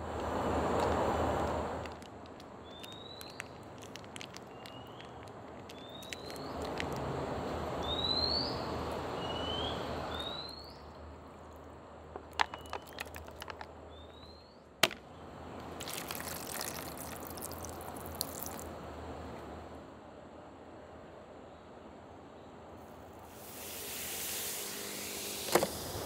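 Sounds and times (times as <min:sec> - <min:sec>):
water poured into plastic container: 0:01.8 - 0:07.1, 0:12.2 - 0:13.6, 0:15.7 - 0:18.7
liquid soup poured over noodles: 0:02.7 - 0:07.0, 0:15.8 - 0:18.7.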